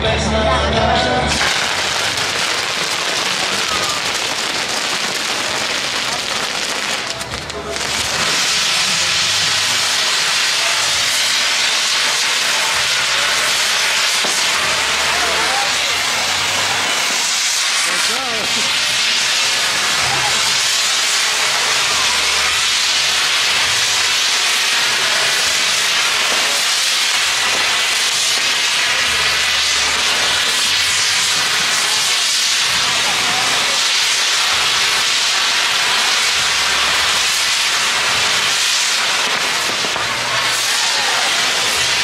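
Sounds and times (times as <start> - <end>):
fireworks hissing sparks: 0.9 - 42.0.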